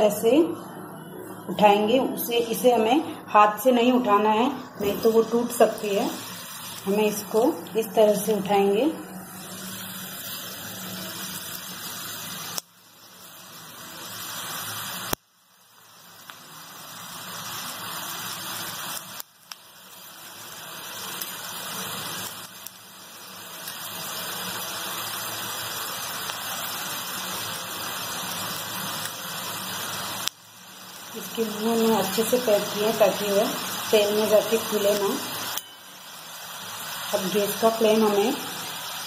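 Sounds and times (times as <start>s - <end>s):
dough sizzling in hot oil: 0.0s - 39.0s.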